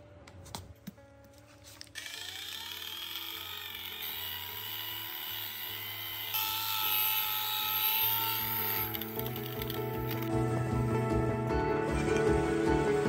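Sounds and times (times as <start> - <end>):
electric polisher whining: 2.0 - 10.2.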